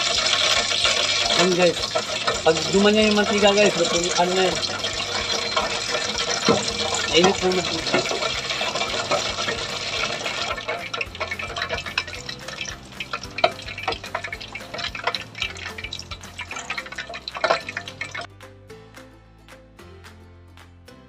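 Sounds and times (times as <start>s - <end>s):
chicken deep-frying in oil: 0.0s - 18.3s
soft background music: 0.0s - 21.0s.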